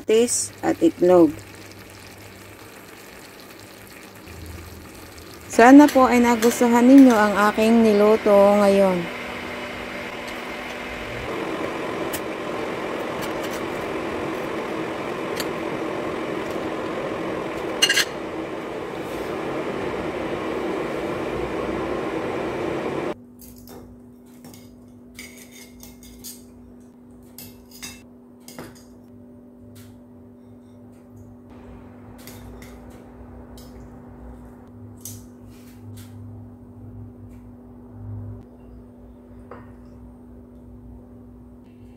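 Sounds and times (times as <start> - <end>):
low hum: 0.0 - 23.2
utensils clinking against dishes: 17.8 - 18.2, 23.6 - 29.0.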